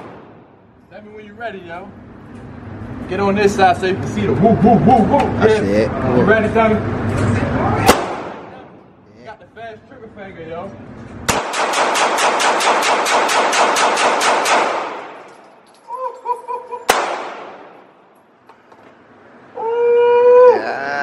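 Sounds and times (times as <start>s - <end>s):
pistol shots echoing: 0.0s - 0.6s, 7.9s - 8.7s, 11.3s - 15.6s, 16.9s - 18.1s.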